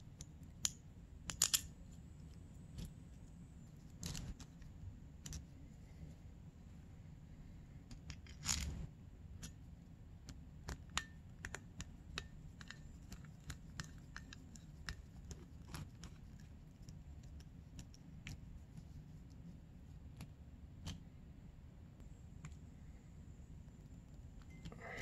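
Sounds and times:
small metal parts clicking: 0:00.6 - 0:01.7.

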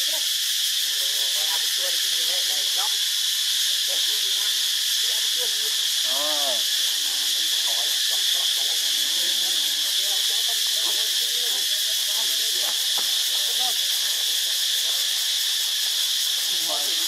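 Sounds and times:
insects droning: 0:00.0 - 0:17.0
faint indistinct calls: 0:03.6 - 0:12.4.

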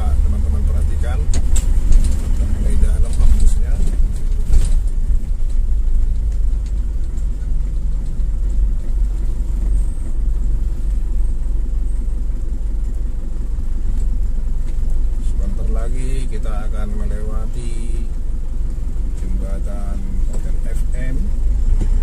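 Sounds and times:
car rumble from inside cabin: 0:00.0 - 0:22.0.

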